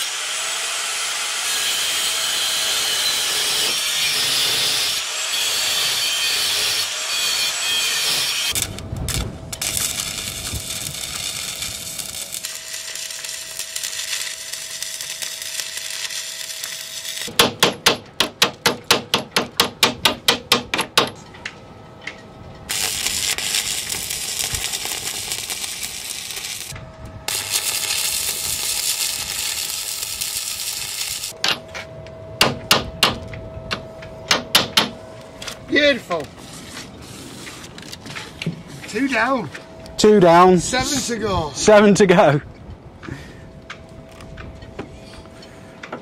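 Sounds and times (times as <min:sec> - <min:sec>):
welding arc crackling and hissing: 0:02.6 - 0:17.3, 0:22.7 - 0:31.4
chipping hammer knocking metal: 0:17.3 - 0:21.2.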